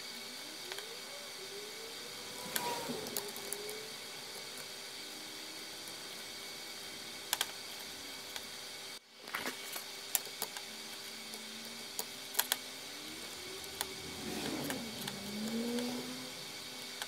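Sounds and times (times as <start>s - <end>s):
steady hum: 0.0s - 17.0s
computer mouse clicks: 12.0s - 12.6s.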